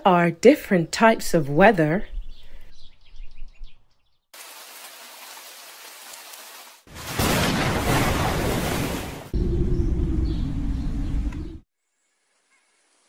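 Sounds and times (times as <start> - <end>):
heavy rain: 4.4 - 9.4
rumble of thunder: 7.2 - 11.6.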